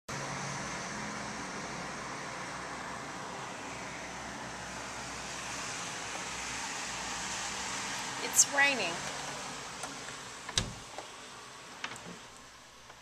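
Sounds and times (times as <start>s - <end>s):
rain falling on wet street: 0.2s - 8.2s, 9.0s - 13.0s.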